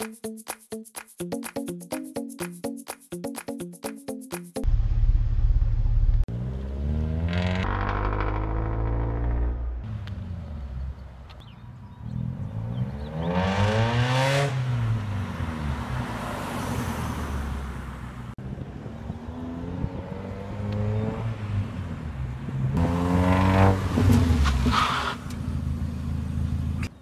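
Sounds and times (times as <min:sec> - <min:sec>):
car engine revving: 0:04.7 - 0:11.2, 0:12.1 - 0:16.6, 0:22.6 - 0:26.7.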